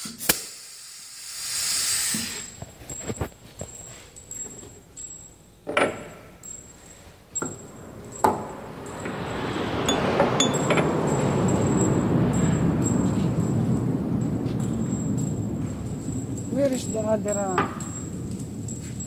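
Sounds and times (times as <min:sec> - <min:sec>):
steady rushing noise: 0:07.1 - 0:19.0.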